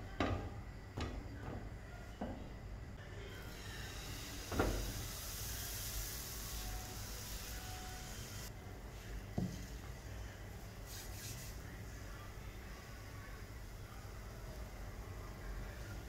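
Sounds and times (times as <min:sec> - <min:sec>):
batter sizzling on griddle: 0:03.4 - 0:16.0.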